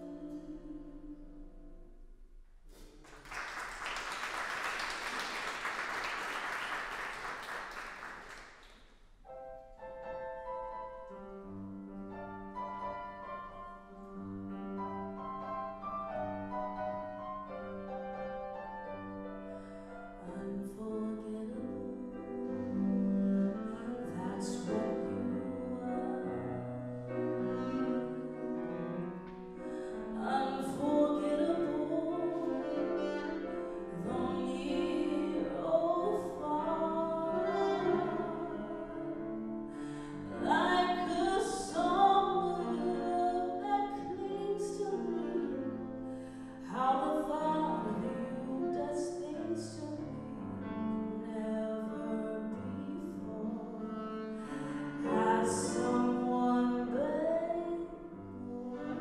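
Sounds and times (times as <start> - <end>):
woman singing: 0.0 - 1.6, 20.1 - 27.8, 29.7 - 59.0
audience applause: 3.0 - 8.7
piano playing slow chords: 9.3 - 59.0.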